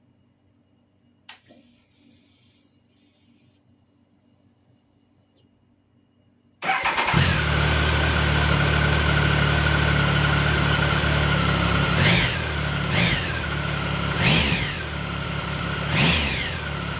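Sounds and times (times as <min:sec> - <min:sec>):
engine whine: 0:06.6 - 0:16.9
motorcycle engine starting and idling: 0:06.6 - 0:16.9
throttle blips revving: 0:09.8 - 0:16.9.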